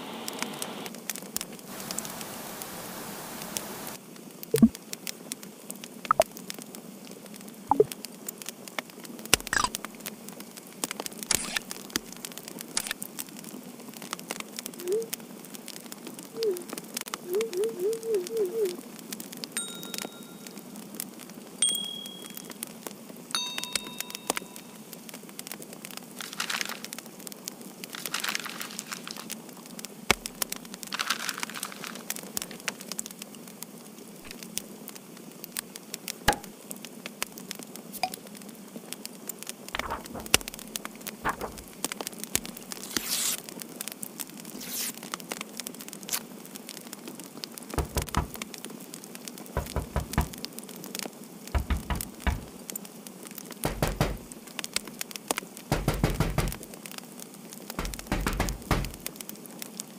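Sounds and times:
steady hiss: 0.0s - 59.9s
crackling and popping: 0.1s - 59.9s
low thuds: 39.8s - 41.8s, 51.6s - 52.5s, 55.7s - 56.6s, 57.8s - 59.1s.

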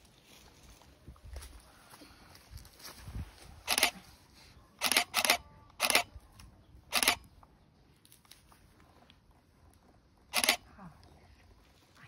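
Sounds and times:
camera shutter bursts: 3.7s - 4.0s, 4.8s - 6.1s, 6.9s - 7.2s, 10.4s - 10.6s.

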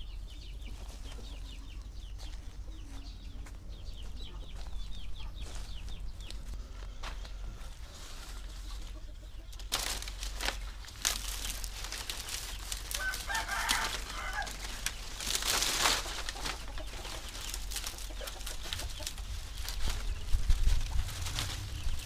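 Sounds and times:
chickens clucking: 0.0s - 22.0s
dry leaves rustling and crackling: 0.6s - 3.6s, 4.6s - 22.0s
rooster crowing: 12.9s - 14.8s.

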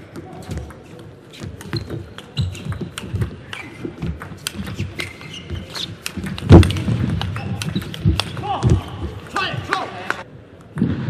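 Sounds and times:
shoes squeaking on floor: 0.3s - 9.2s.

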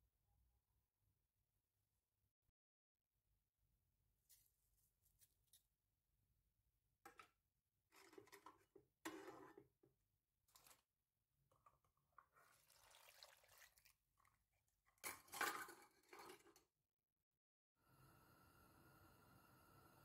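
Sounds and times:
water pouring into pot: 11.6s - 16.6s.

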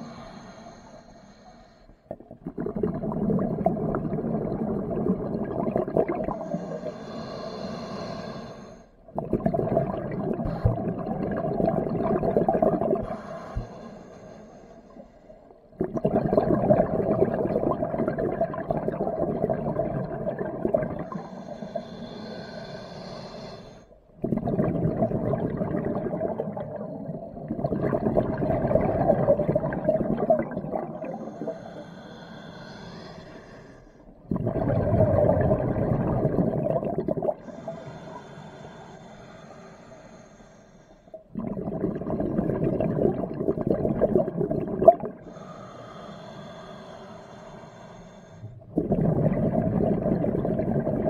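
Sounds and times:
exhaled bubbles underwater: 2.1s - 7.2s, 9.0s - 13.8s, 14.9s - 22.2s, 24.0s - 32.2s, 34.1s - 38.2s, 41.1s - 45.6s, 48.4s - 51.0s
regulator hissing on inhale: 6.4s - 8.9s, 21.1s - 24.0s, 31.1s - 34.1s, 37.4s - 41.2s, 45.2s - 48.6s.

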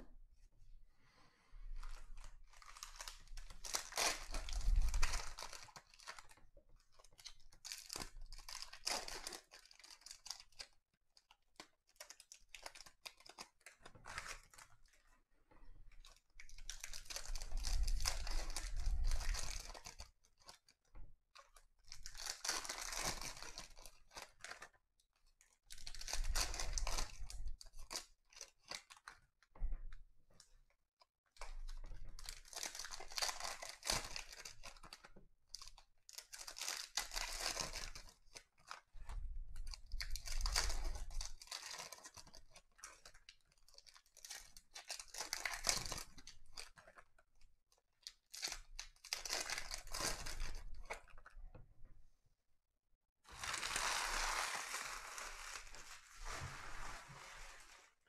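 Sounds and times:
wrappers tearing and crinkling: 1.8s - 6.3s, 7.2s - 10.6s, 16.1s - 20.5s, 21.9s - 24.6s, 25.7s - 29.0s, 32.2s - 38.8s, 39.6s - 46.8s, 48.3s - 51.0s, 53.3s - 57.9s.

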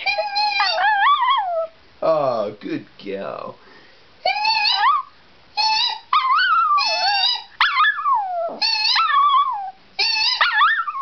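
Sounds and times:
small dog howling: 0.0s - 1.8s, 4.2s - 11.0s.

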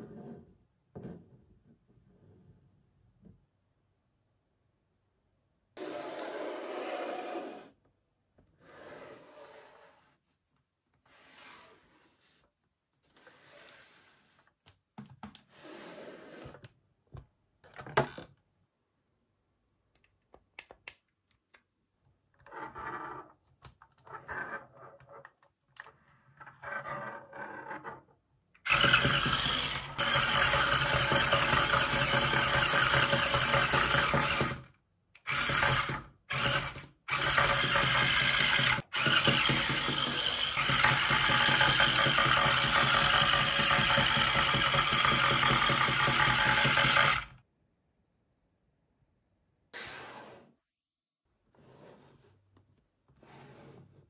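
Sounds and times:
small motor running: 28.7s - 47.3s.

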